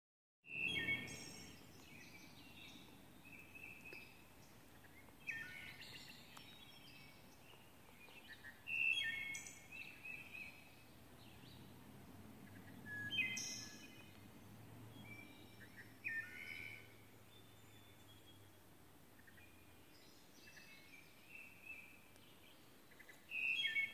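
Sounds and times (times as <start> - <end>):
songbirds chirping: 0.4 - 23.9
low outdoor background rumble: 9.5 - 20.2.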